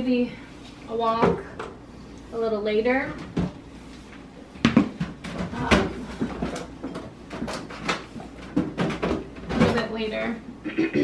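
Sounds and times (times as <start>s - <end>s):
irregular knocks and clatters: 4.6s - 9.9s.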